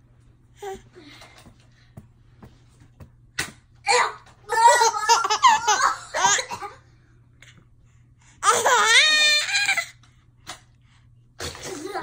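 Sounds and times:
baby laughing: 0:04.5 - 0:06.8.

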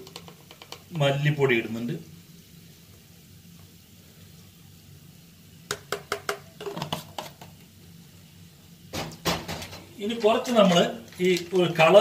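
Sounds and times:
kitchen utensils tapping: 0:00.0 - 0:00.9, 0:05.7 - 0:07.4
faint steady hum: 0:00.0 - 0:12.0.

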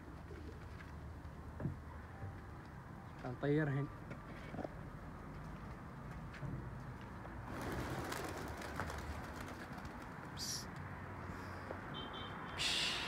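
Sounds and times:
pigeon wings flapping: 0:07.5 - 0:10.2.

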